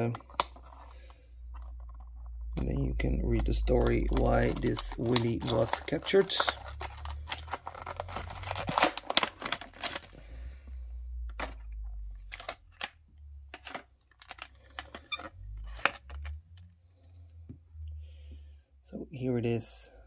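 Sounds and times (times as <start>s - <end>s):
plastic packaging crackling: 0.0s - 10.4s.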